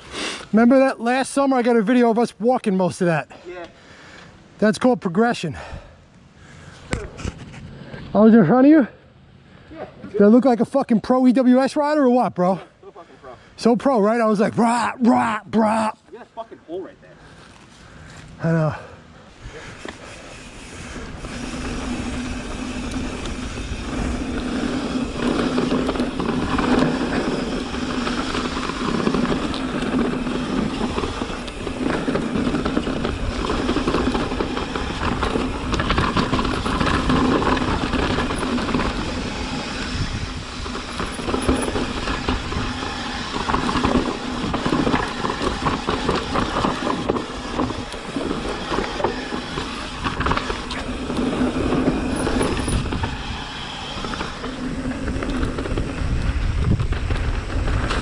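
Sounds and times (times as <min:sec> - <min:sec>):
bike tyre noise on dirt: 0:00.0 - 0:58.0
chain and frame rattling: 0:40.6 - 0:53.3.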